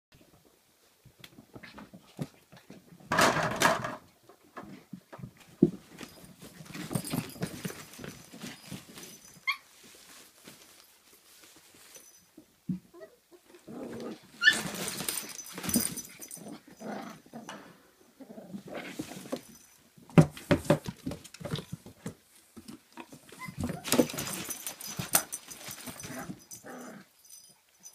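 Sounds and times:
puppies scuffling and scrabbling: 0:01.0 - 0:27.9
high puppy squeak: 0:14.4 - 0:14.7, 0:23.4 - 0:23.8.

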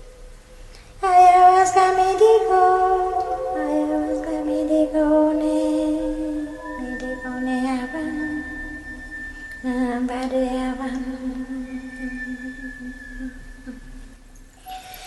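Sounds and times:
person chanting: 0:01.0 - 0:08.8
high steady tone: 0:01.0 - 0:15.0.

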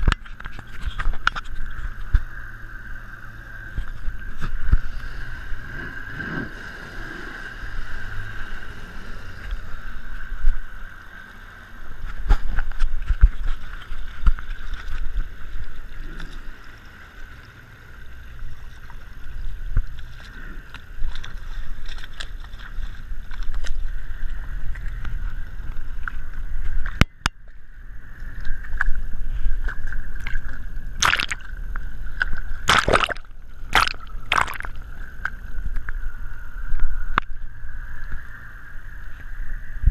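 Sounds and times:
outboard motor whine: 0:00.0 - 0:39.9
water rushing along boat hull: 0:00.0 - 0:39.9
water splashes on camera housing: 0:30.2 - 0:31.6, 0:32.2 - 0:34.9.

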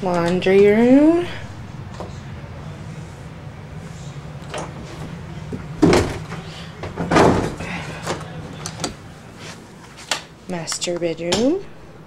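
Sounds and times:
steady low hum: 0:00.0 - 0:12.0
house door thumping: 0:05.5 - 0:08.2.

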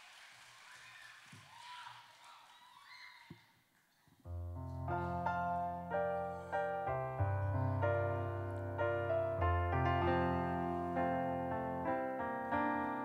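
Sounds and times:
slow piano chords: 0:04.3 - 0:13.0.

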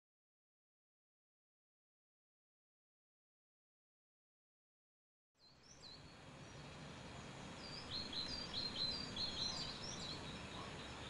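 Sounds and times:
outdoor background hiss: 0:05.4 - 0:11.0
small birds chirping: 0:05.4 - 0:11.0.

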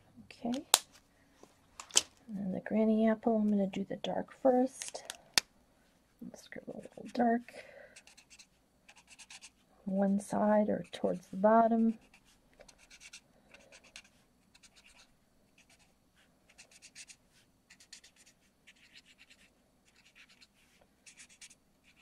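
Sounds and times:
marker scratching on card: 0:08.0 - 0:09.6, 0:12.0 - 0:22.0.

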